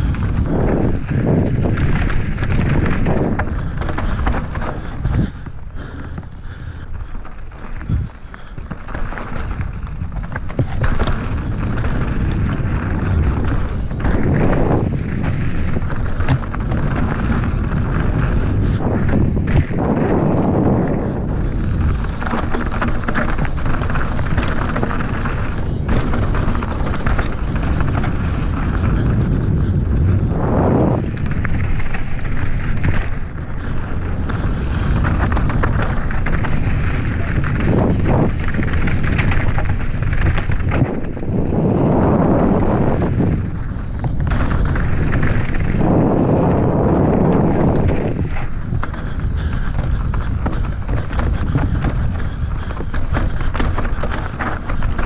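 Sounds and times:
bike rattling over bumps: 0.0 - 55.0
bike tyres rolling on dirt: 0.0 - 55.0
wind on microphone: 0.0 - 55.0.

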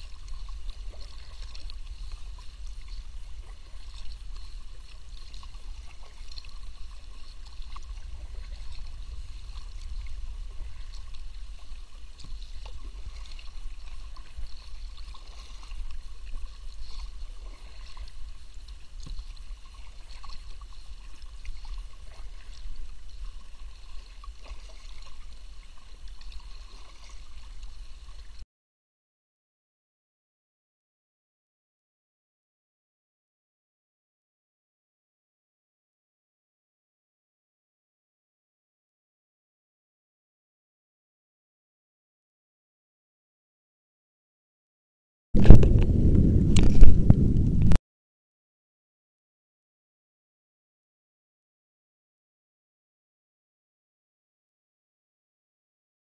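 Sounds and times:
paddle strokes in water: 0.0 - 28.4, 45.4 - 47.8
water dripping off paddle: 0.0 - 28.4.

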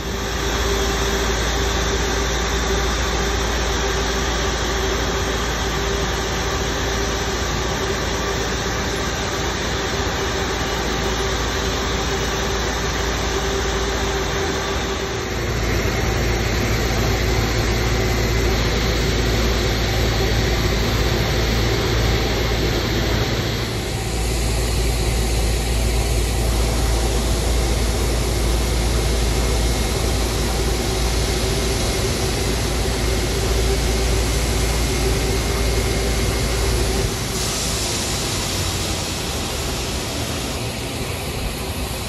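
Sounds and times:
jet engine roar and whine: 0.0 - 42.0
deep engine rumble: 11.1 - 42.0.

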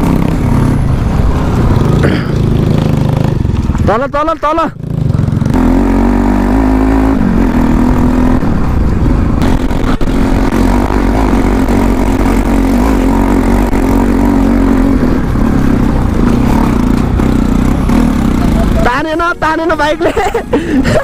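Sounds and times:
motorcycle engine running: 0.0 - 20.6
tyres on gravel: 1.5 - 4.1.

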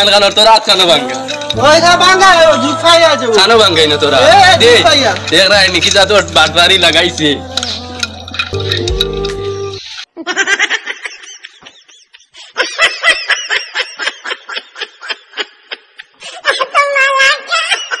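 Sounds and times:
music: 0.4 - 9.8
person laughing: 10.1 - 18.0.

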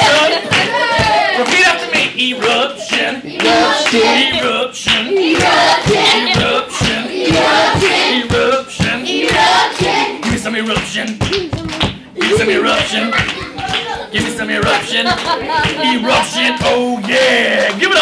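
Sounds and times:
children chanting a vocal beat: 0.0 - 18.0
clapping: 0.4 - 4.0, 9.3 - 14.0, 15.1 - 15.8, 16.6 - 18.0.

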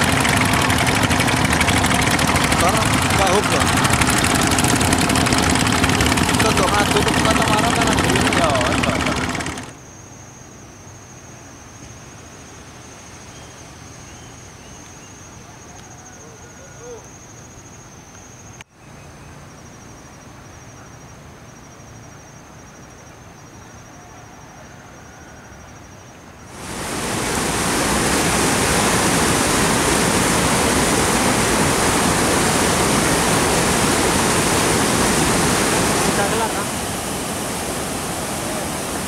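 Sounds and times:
rushing whitewater rapids: 0.0 - 9.7, 26.5 - 39.0
quiet river ambience: 0.0 - 39.0
high insect trill: 9.7 - 15.4.

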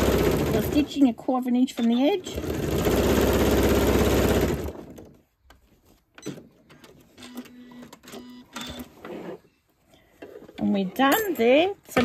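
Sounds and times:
sewing machine running: 0.0 - 0.9, 2.2 - 5.0
fabric handling: 5.1 - 7.2.

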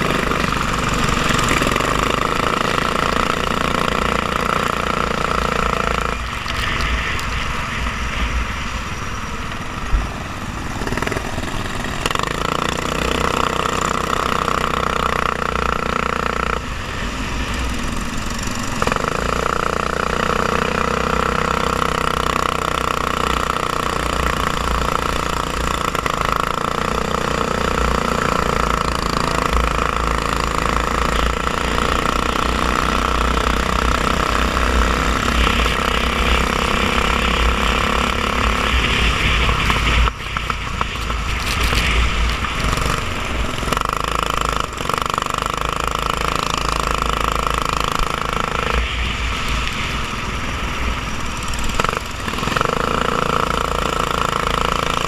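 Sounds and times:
go-kart engine running hard: 0.0 - 55.0
wind rumble on microphone: 34.3 - 44.9.

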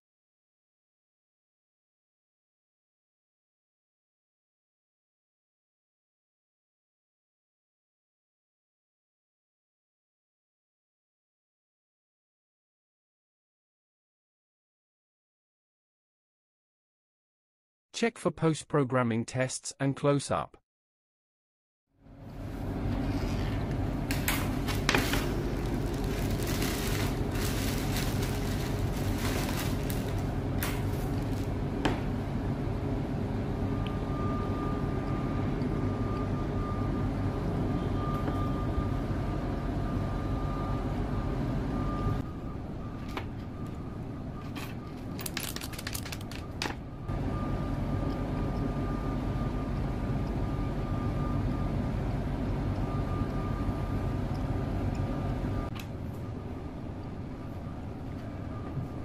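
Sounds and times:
low mechanical hum: 22.0 - 59.0.

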